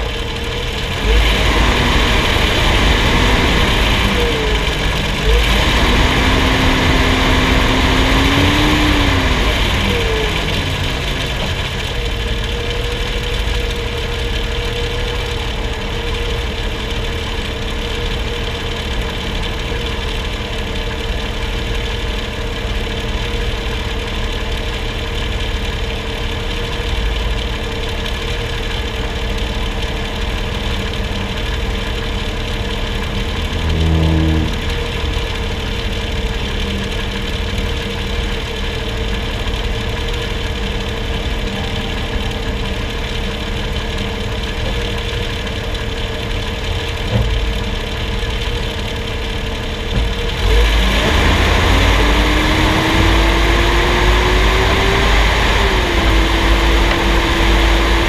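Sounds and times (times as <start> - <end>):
truck engine idling: 0.0 - 58.0
mechanical whine: 31.0 - 47.8.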